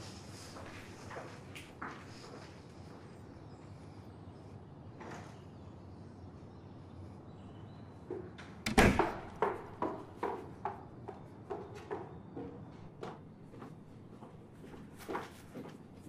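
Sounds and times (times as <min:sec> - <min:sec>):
door banging shut: 0:08.6 - 0:09.7
sharp knocks: 0:08.6 - 0:10.8.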